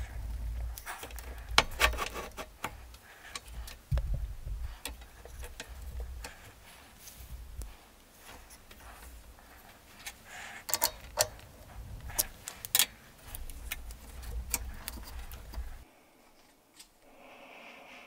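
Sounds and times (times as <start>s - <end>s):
metallic clicks of lathe chuck: 10.7s - 11.4s.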